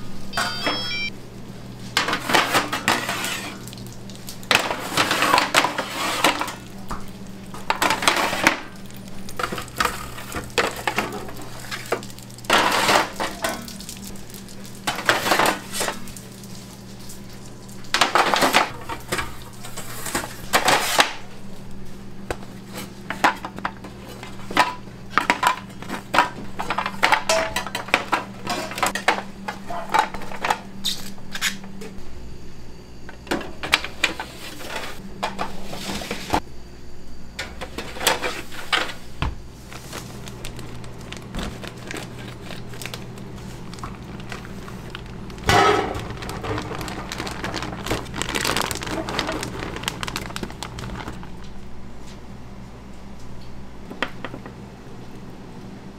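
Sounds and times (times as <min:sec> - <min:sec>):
low hum of kitchen equipment: 0:00.0 - 0:55.9
metal pans clattering and scraping: 0:02.0 - 0:03.6, 0:04.5 - 0:06.6, 0:07.5 - 0:08.7, 0:23.1 - 0:30.6, 0:45.5 - 0:46.9.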